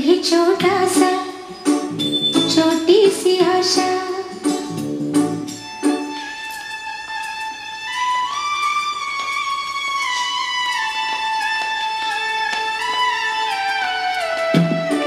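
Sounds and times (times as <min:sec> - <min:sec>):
person singing over a beat: 0:00.0 - 0:04.8
instrumental melody of long notes: 0:00.7 - 0:15.0.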